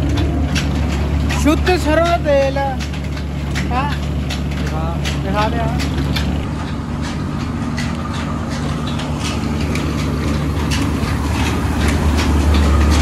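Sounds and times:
machinery clicks and knocks: 0.0 - 13.0
mill machinery humming: 0.0 - 13.0.

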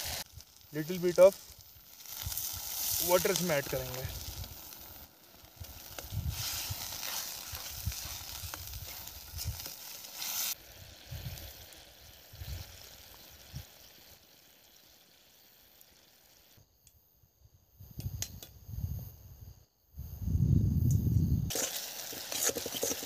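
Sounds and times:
food sizzling in pan: 0.0 - 16.6, 21.5 - 23.0.

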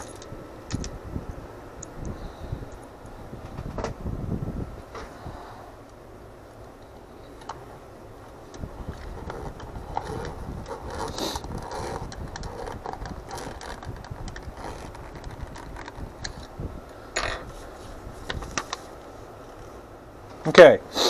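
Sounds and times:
plastic parts clicking and creaking: 0.0 - 0.9, 8.5 - 16.5
screwdriver turning screws: 8.9 - 16.5.

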